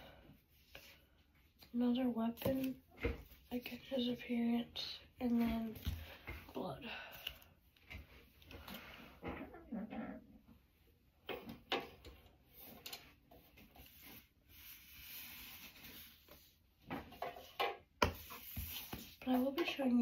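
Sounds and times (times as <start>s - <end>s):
soft rubbing and sliding: 12.5s - 17.5s, 18.1s - 19.9s.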